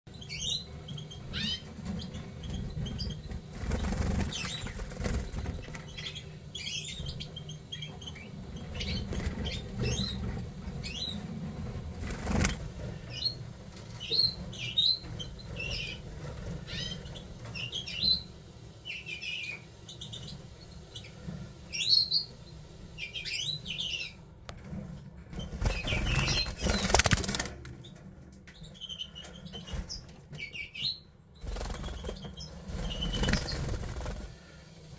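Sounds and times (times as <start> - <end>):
birds chirping and twittering: 0.1 - 34.9
wings flapping: 3.5 - 6.0, 11.8 - 12.9, 25.4 - 27.8, 31.4 - 34.5.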